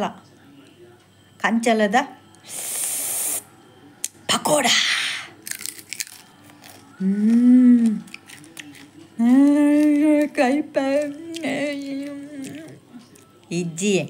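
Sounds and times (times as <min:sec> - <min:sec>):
woman humming: 0:07.0 - 0:08.1, 0:09.2 - 0:12.8.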